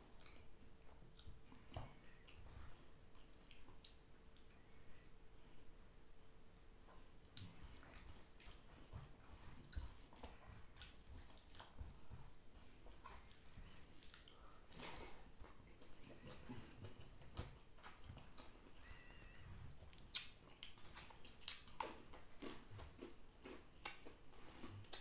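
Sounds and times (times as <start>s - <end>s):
chewing mouth sounds: 0.0s - 2.4s, 3.2s - 5.0s, 7.0s - 25.0s
wet squishes of rice mixed by hand: 7.3s - 18.6s.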